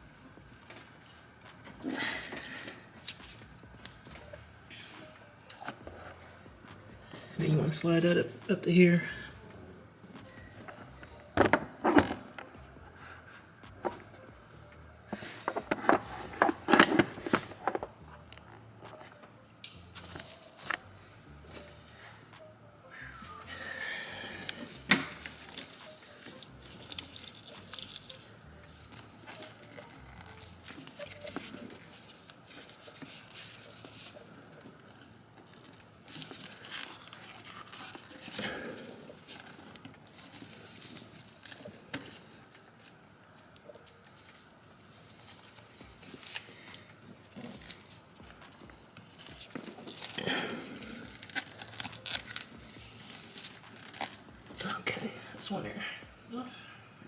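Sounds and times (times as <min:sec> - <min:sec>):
rustling and scraping: 0:15.1 - 0:19.2, 0:24.6 - 0:55.0
plastic and rubber parts crunching: 0:45.2 - 0:54.6.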